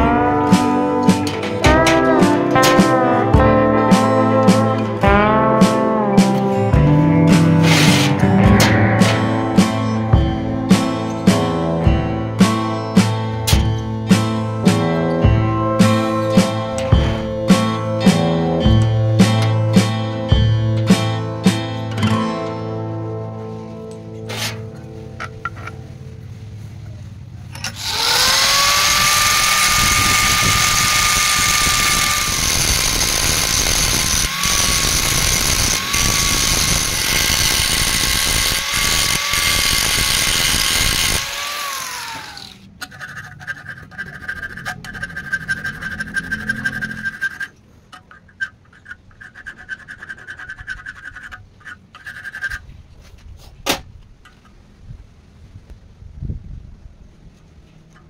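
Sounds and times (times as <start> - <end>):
angle grinder grinding steel: 7.3 - 11.4, 27.6 - 52.6.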